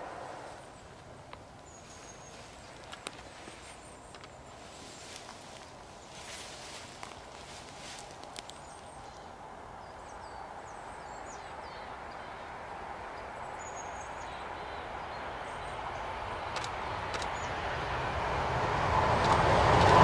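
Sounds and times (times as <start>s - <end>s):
electric train approaching: 0.0s - 1.0s, 9.4s - 20.0s
small birds chirping: 0.3s - 17.6s.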